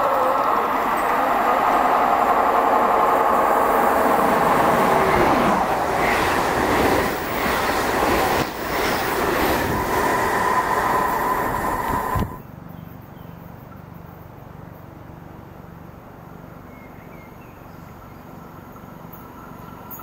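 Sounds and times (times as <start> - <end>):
high-speed train passing: 0.0 - 12.7.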